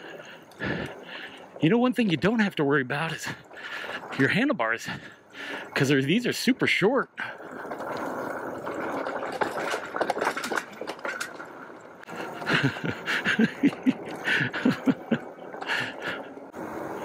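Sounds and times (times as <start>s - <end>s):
bike tyres rumbling on dirt: 0.0s - 17.0s
clicks and rattles: 7.4s - 16.5s.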